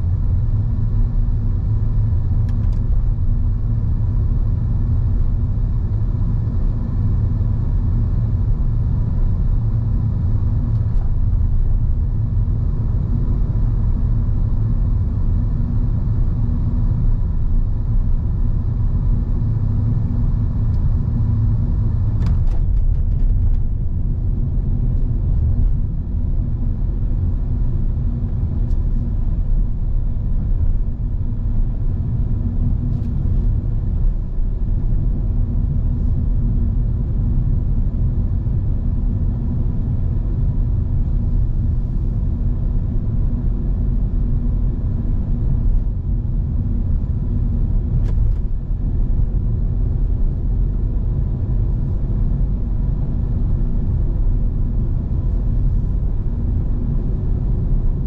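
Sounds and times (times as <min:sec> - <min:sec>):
car driving rumble: 0:00.0 - 0:58.0.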